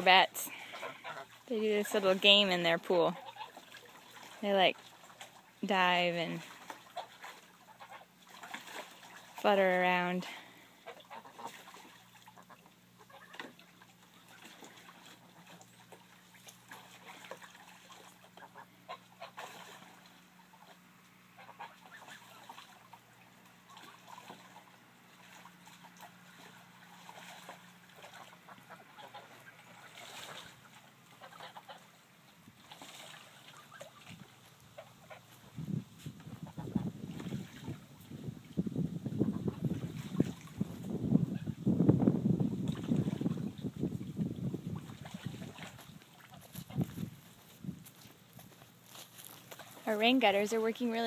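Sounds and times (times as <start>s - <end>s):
water splashing: 0.0s - 41.5s, 42.4s - 51.0s
geese honking: 0.4s - 1.8s, 2.4s - 4.2s, 6.7s - 8.6s, 10.8s - 32.1s.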